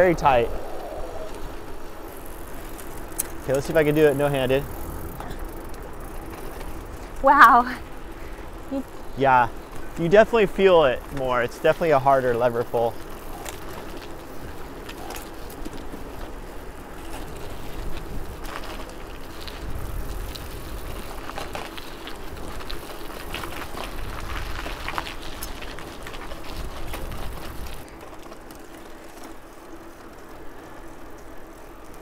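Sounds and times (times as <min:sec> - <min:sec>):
wind rumble on microphone: 0:00.0 - 0:07.3, 0:13.0 - 0:27.8
bicycle tyres on pavement: 0:00.0 - 0:32.0
bike clicks and rattles: 0:00.0 - 0:32.0.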